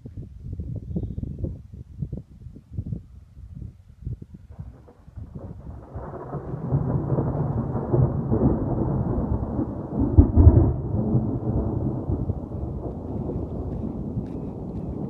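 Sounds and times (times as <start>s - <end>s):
thunder rumbling: 4.5s - 15.0s.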